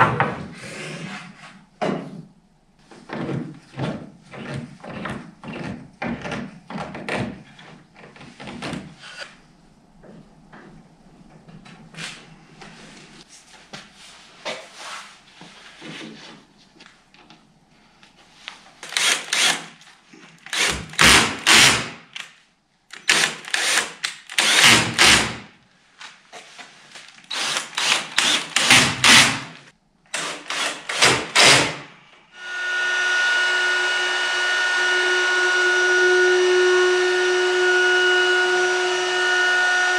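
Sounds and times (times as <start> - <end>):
knocks and tool handling: 1.8 - 9.0.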